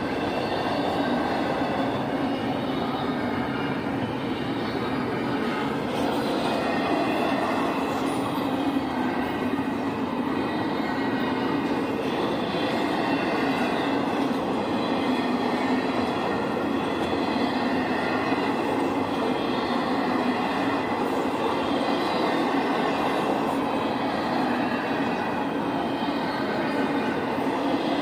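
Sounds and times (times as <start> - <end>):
train wheels rumbling on track: 0.0 - 28.0.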